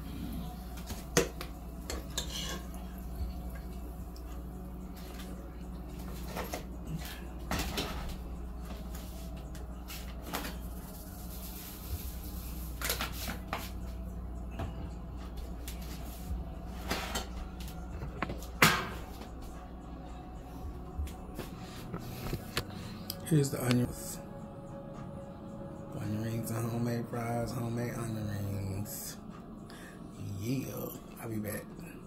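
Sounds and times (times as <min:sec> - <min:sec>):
steady low hum: 0:00.0 - 0:32.0
dishes and utensils clinking: 0:01.1 - 0:02.9.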